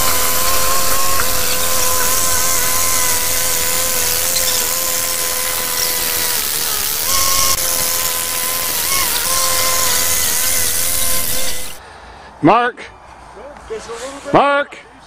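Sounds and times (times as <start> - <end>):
high whine: 0.0 - 11.8.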